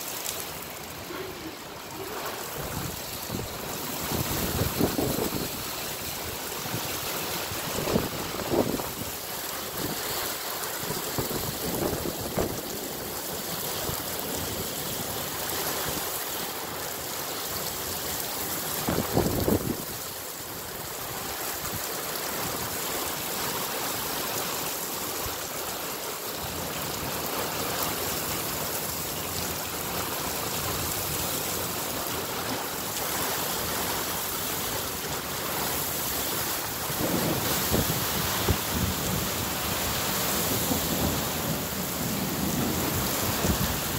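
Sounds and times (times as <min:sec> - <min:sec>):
steady rain: 0:00.0 - 0:43.9
thunder rumbling: 0:36.7 - 0:43.9.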